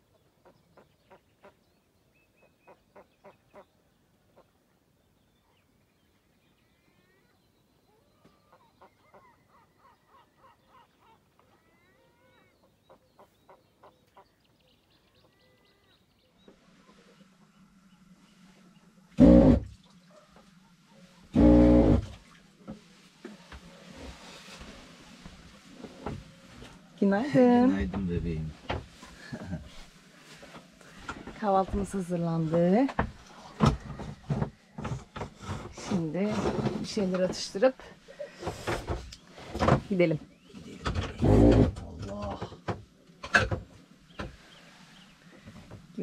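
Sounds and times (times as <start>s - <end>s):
faint bird calls: 0.0s - 27.0s
low steady hum: 15.4s - 28.6s.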